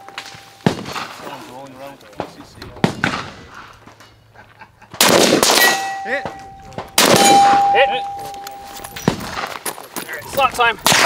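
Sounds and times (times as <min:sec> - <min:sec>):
gunshots: 0:00.6 - 0:01.3, 0:02.2 - 0:03.5, 0:04.9 - 0:08.0, 0:10.8 - 0:11.0
steel target ringing: 0:05.5 - 0:09.1.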